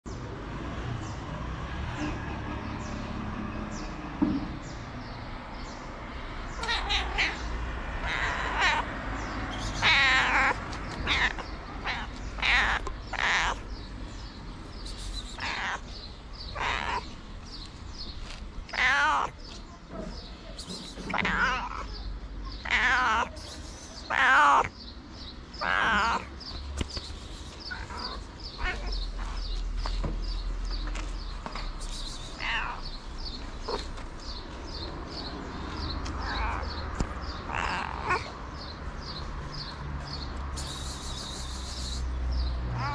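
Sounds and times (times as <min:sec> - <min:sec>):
cat meowing: 0:06.5 - 0:08.9, 0:09.5 - 0:13.7, 0:15.3 - 0:17.1, 0:18.7 - 0:19.4, 0:21.1 - 0:24.7, 0:25.6 - 0:26.4, 0:27.7 - 0:29.6, 0:32.2 - 0:34.5, 0:36.0 - 0:38.4.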